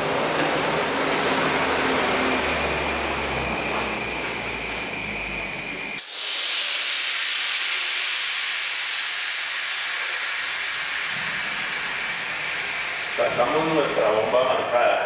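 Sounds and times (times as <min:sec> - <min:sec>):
compressed air hissing: 0:06.0 - 0:15.0.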